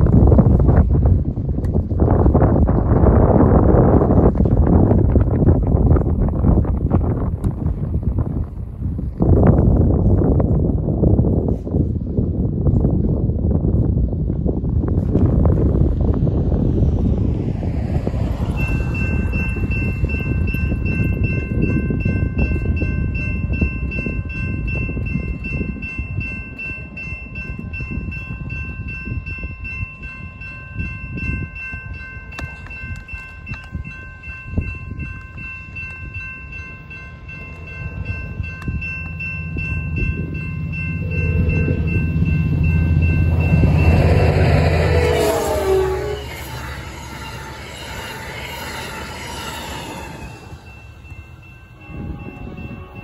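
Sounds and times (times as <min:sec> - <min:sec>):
diesel train rumble: 0:00.0 - 0:53.0
crossing warning bell ringing: 0:18.2 - 0:53.0.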